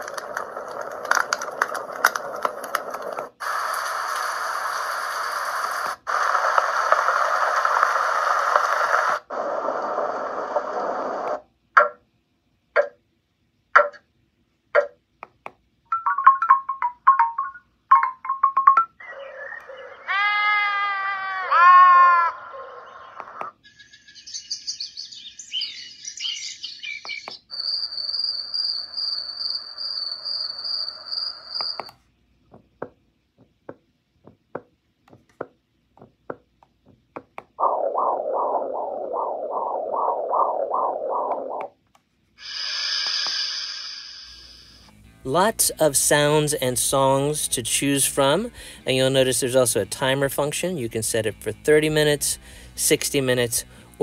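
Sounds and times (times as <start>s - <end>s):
sparse clicks: 0.0s - 4.3s
white noise hiss: 2.0s - 12.6s
bird-like chirps: 22.8s - 31.9s
steady high tone: 37.6s - 41.8s.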